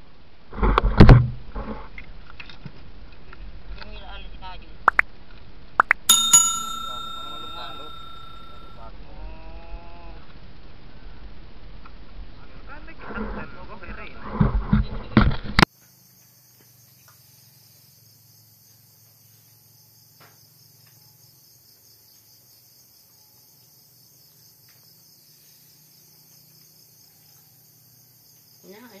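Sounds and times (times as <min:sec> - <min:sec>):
crickets chirping: 0:05.8 - 0:08.9, 0:15.6 - 0:29.0.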